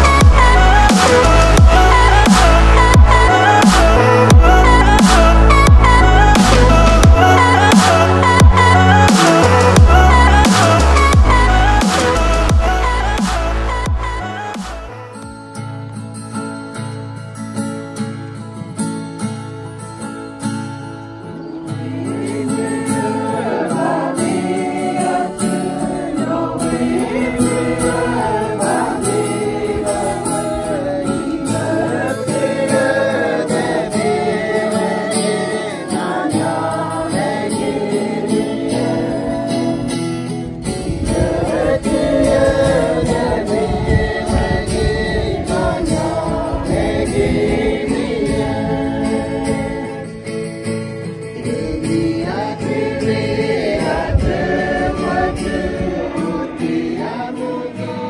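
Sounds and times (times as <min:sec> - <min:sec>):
group singing a hymn: 0:00.0 - 0:15.0, 0:21.2 - 0:58.0
strummed acoustic guitar: 0:00.0 - 0:58.0.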